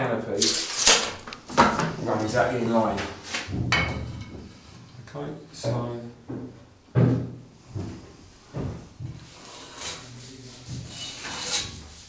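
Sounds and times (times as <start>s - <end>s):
spirit level scraping plaster wall: 0.3s - 4.9s, 7.7s - 12.0s.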